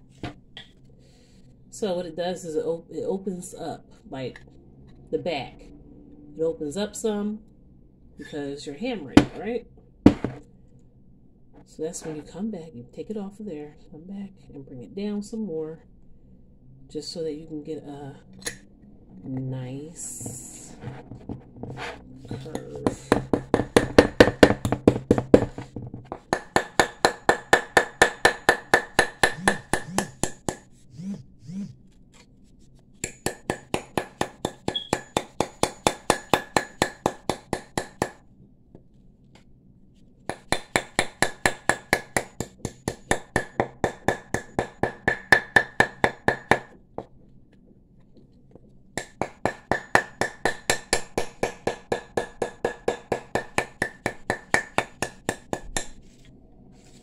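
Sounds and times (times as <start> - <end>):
hammer tapping metal bangle: 22.6 - 30.7, 49.0 - 56.0.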